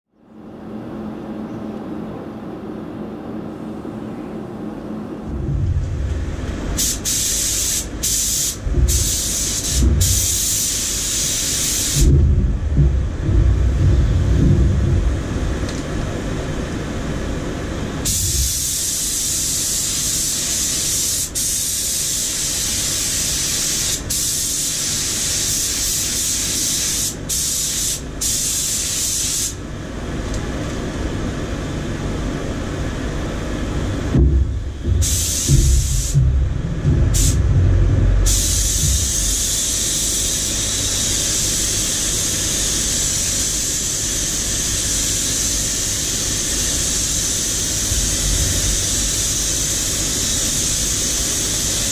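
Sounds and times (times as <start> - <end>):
low rumble: 2.6 - 6.9, 8.6 - 10.3, 12.0 - 17.1, 32.8 - 39.9
paint spray gun hissing: 6.7 - 12.2, 18.0 - 29.6, 34.8 - 36.2, 37.1 - 37.4, 38.2 - 51.9.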